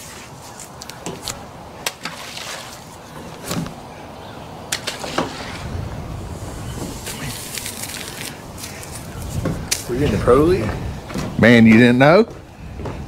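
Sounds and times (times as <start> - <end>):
water lapping against a dock: 0.9 - 7.5
ball splashing into water: 1.8 - 2.9.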